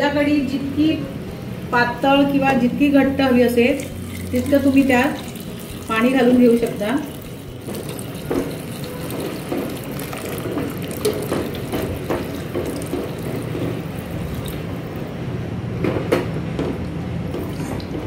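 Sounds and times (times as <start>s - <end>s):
water pouring into a pot: 3.7s - 14.9s.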